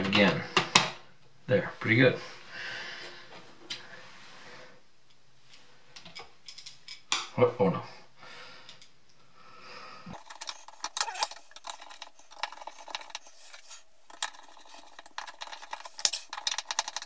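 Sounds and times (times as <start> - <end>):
screwdriver clicks and scrapes: 10.1 - 17.0.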